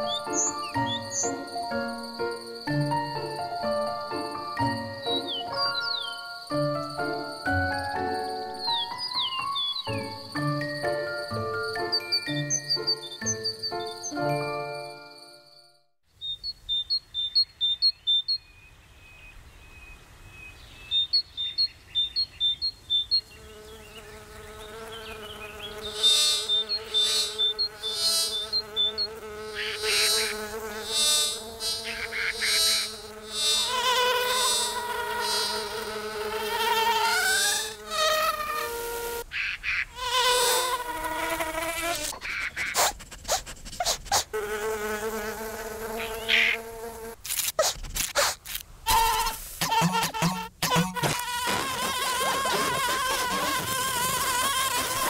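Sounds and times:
high chirping pips: 0.0s - 2.8s, 24.7s - 35.8s, 47.3s - 55.0s
insect wings buzzing: 23.2s - 39.3s, 39.9s - 55.0s.

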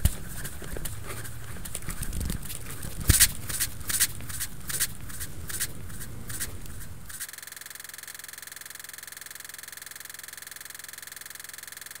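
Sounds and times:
palms rubbing with taps: 0.0s - 7.2s
rapidly pulsing buzz: 0.0s - 12.0s.

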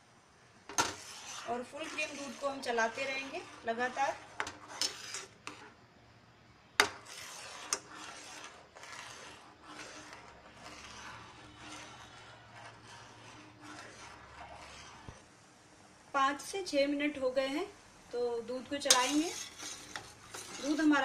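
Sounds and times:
spatula scraping a pan: 0.7s - 5.8s, 6.8s - 15.2s, 18.8s - 21.0s.

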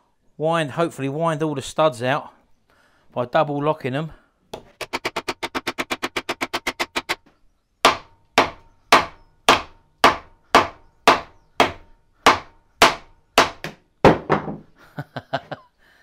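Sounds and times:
mallet striking metal: 7.9s - 14.2s.

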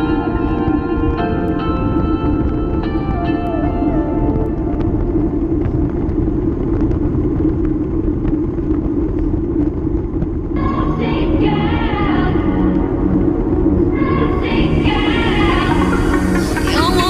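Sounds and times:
music: 0.0s - 7.2s, 10.6s - 17.0s
bicycle road rumble: 0.0s - 17.0s.

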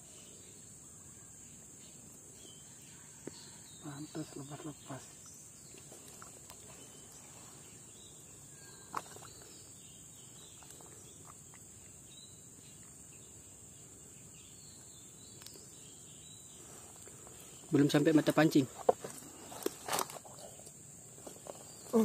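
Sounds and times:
insects chorus: 0.0s - 22.0s.

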